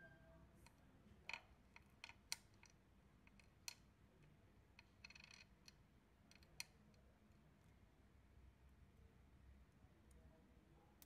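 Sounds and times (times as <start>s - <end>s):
ball bearings rattling clatter: 4.8s - 6.6s
steel ball bearings clicking: 4.8s - 6.7s.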